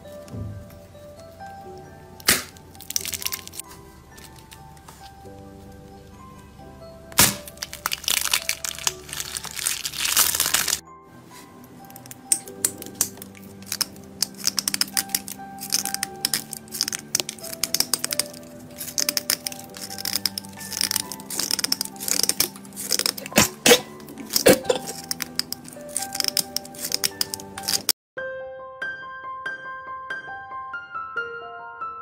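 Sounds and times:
soft background music: 0.0s - 32.0s
hard shell cracking and crunching: 2.2s - 4.6s, 7.2s - 10.8s, 11.9s - 28.0s.

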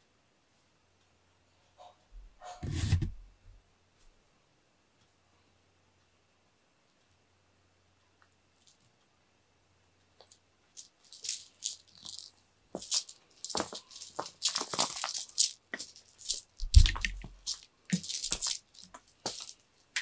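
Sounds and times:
cat toy rustling and rattling: 10.2s - 20.0s.

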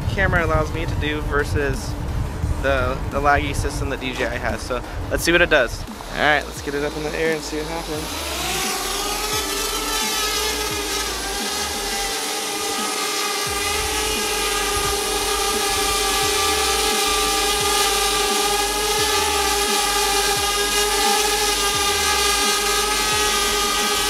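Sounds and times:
low gusty rumble: 0.0s - 12.2s
drone propellers buzzing: 0.0s - 24.0s.

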